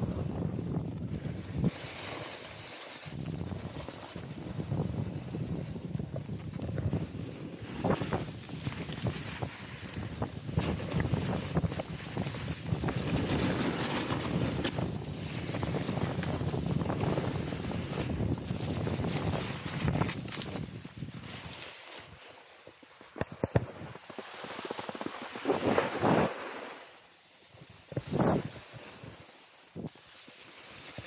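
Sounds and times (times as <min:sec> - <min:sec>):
wind on microphone: 0:00.0 - 0:02.2, 0:03.0 - 0:21.6, 0:27.5 - 0:29.2
snowboard scraping over snow: 0:00.0 - 0:31.0.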